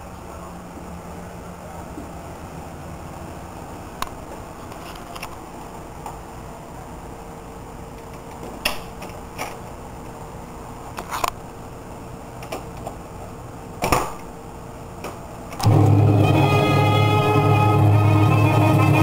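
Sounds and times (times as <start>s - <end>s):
faint steady hum: 0.0s - 19.0s
guitar-led music: 15.6s - 19.0s.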